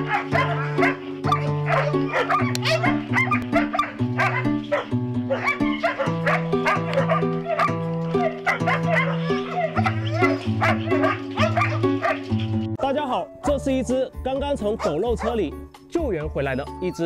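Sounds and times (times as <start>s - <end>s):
dog barking and yipping: 0.0s - 12.6s, 14.7s - 15.4s
background music with bass line: 0.0s - 17.0s.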